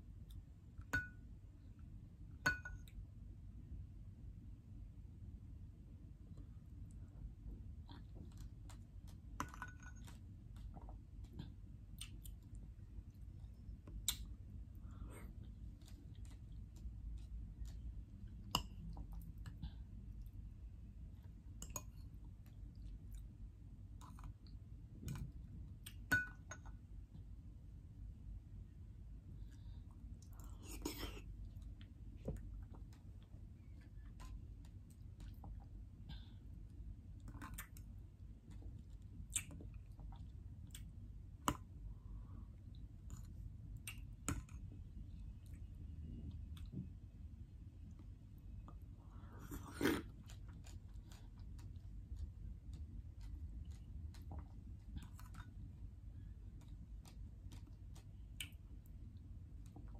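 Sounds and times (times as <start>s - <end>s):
chewing and wet mouth clicks: 9.9s - 13.2s, 13.8s - 14.4s, 15.4s - 20.3s, 37.2s - 41.7s, 43.1s - 44.6s, 49.5s - 55.7s, 56.5s - 58.9s
wet chewing mouth sounds: 48.7s - 58.7s.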